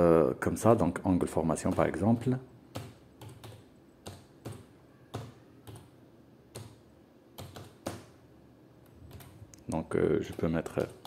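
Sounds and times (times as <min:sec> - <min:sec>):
typing on computer keyboard: 0:01.6 - 0:08.1, 0:08.8 - 0:09.4, 0:10.1 - 0:11.0.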